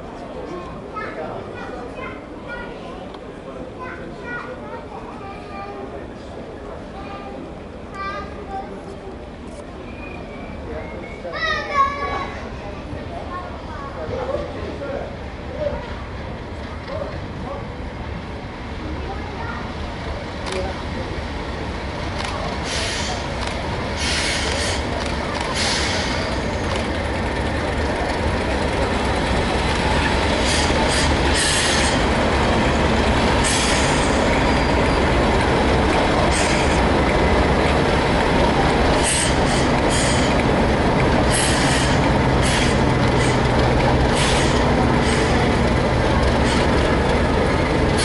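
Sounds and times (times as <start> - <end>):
diesel locomotive engines humming: 0.0 - 48.0
wheel squeals: 33.4 - 35.2.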